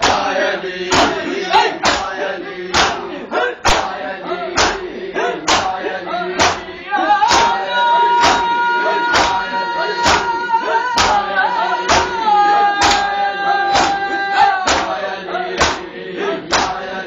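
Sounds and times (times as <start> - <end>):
hands slapping chests: 0.0 - 0.3, 0.9 - 1.2, 1.8 - 3.0, 3.6 - 4.0, 4.6 - 4.9, 5.5 - 5.8, 6.4 - 6.7, 7.3 - 7.6, 8.2 - 8.5, 9.1 - 9.4, 10.0 - 10.4, 11.0 - 11.3, 11.9 - 12.2, 12.8 - 13.1, 13.8 - 14.0, 14.7 - 15.0, 15.6 - 15.9, 16.5 - 16.8
person singing long notes: 6.8 - 15.1.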